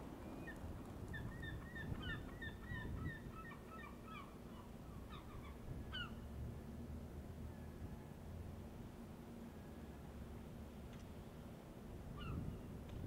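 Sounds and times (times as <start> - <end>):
birds calling: 0.2 - 6.2.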